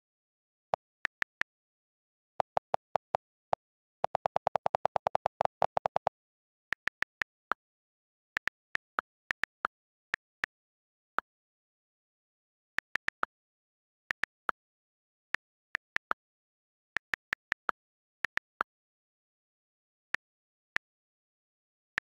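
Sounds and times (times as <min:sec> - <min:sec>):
on-screen keyboard clicks: 0:04.0 - 0:06.1.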